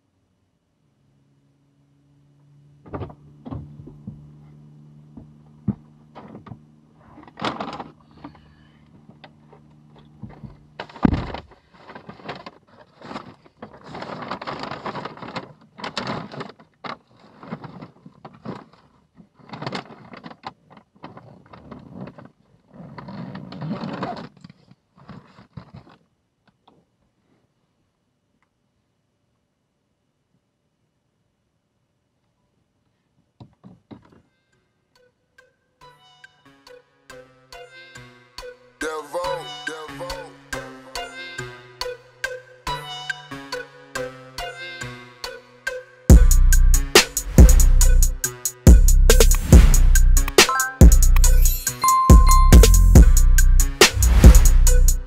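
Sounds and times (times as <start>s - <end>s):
paper bag rustling: 10.3s - 22.4s.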